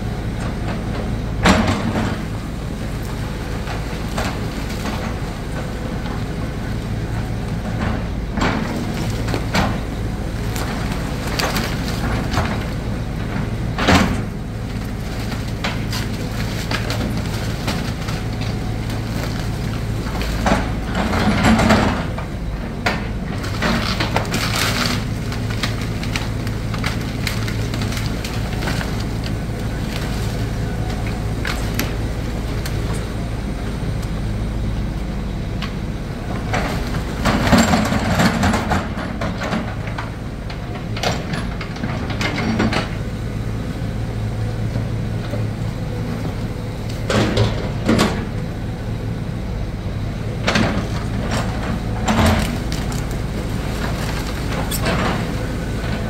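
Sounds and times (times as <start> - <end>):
diesel engine running: 0.0 - 56.0
wood cracking: 1.4 - 22.3, 22.9 - 33.4, 50.5 - 56.0
debris crashing: 7.0 - 22.3, 23.0 - 33.1, 50.5 - 56.0.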